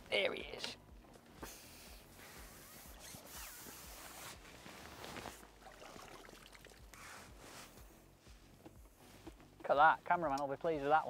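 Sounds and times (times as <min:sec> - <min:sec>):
water splashing and dripping: 0:05.4 - 0:07.0.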